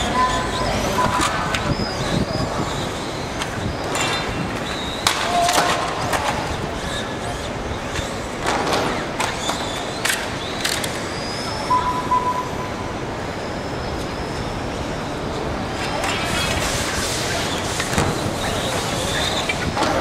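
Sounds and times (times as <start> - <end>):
toy cars rolling wheels: 0.0 - 11.7, 15.7 - 20.0.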